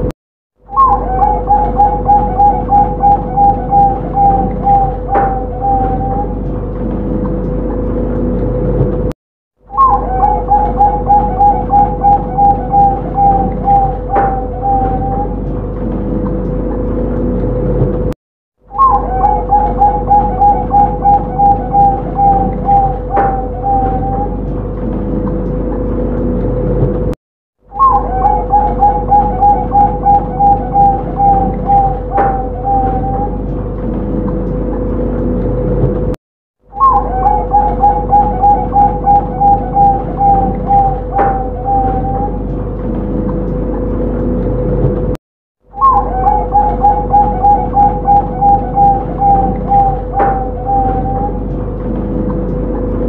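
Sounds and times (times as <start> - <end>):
dove cooing: 0.7 - 6.4, 9.7 - 15.5, 18.7 - 24.5, 27.7 - 33.5, 36.7 - 42.5, 45.8 - 51.5
steady hum: 0.7 - 9.1, 9.7 - 18.2, 18.8 - 53.0.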